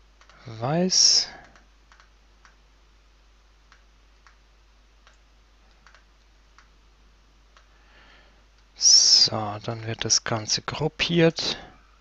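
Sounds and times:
low hiss and mains hum: 0:00.0 - 0:12.0
faint computer mouse clicks: 0:01.4 - 0:02.6, 0:03.7 - 0:04.4, 0:05.0 - 0:06.7.

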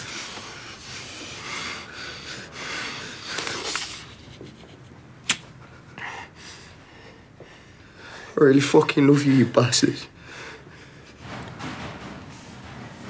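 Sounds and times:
man breathing heavily: 0:00.0 - 0:04.4, 0:05.6 - 0:08.4, 0:10.1 - 0:11.6.

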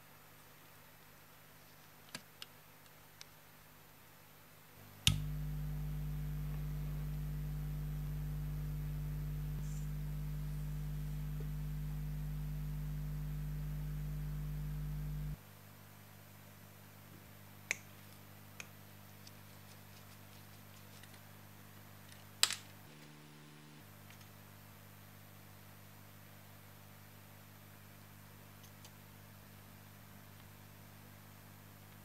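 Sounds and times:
tape recorder motor humming: 0:04.9 - 0:15.4, 0:22.9 - 0:23.9
small clicks: 0:05.0 - 0:05.4
switch click: 0:05.0 - 0:05.8.

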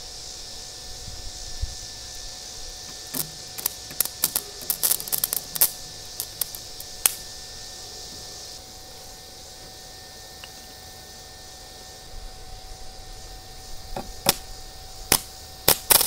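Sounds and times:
arc welding cracks and pops: 0:02.8 - 0:07.4, 0:14.0 - 0:16.0.

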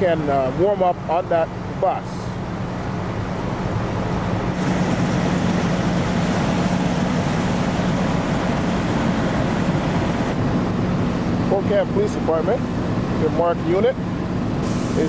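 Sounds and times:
diesel engines droning: 0:00.0 - 0:15.0
even hiss: 0:14.6 - 0:15.0.

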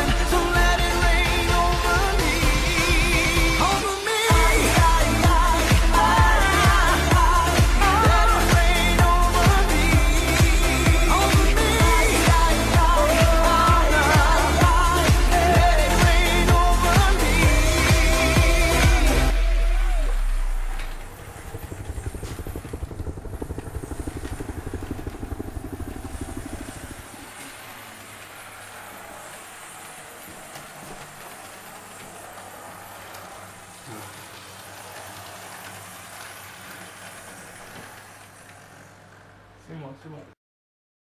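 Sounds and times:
model train motor rattling and humming: 0:20.1 - 0:39.6.

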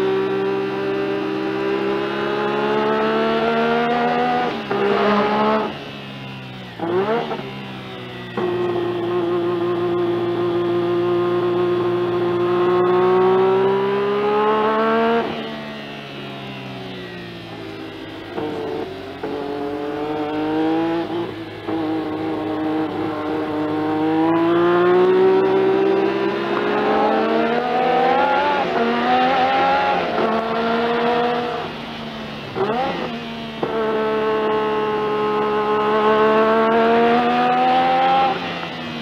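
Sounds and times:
racing car engine accelerating: 0:00.0 - 0:39.0.

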